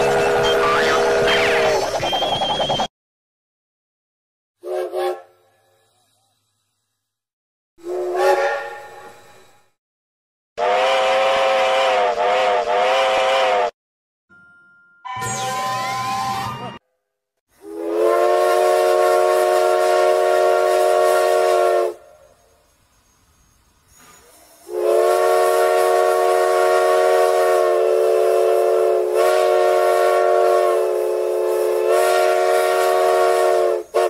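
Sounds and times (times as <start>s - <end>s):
steam locomotive whistle: 0.0s - 2.9s, 4.6s - 5.5s, 7.8s - 9.7s, 10.6s - 13.8s, 17.6s - 22.4s, 24.6s - 34.0s.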